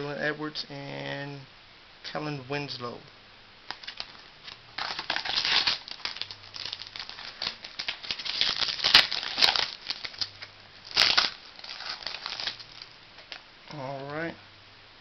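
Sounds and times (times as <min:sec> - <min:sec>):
foil pack crinkling: 0:03.7 - 0:13.4.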